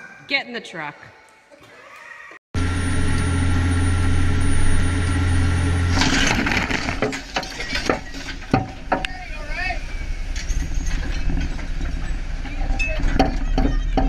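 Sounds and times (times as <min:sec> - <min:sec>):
boat engine droning: 0:02.6 - 0:07.0, 0:08.8 - 0:14.0
metallic bangs and clatters: 0:09.9 - 0:14.0.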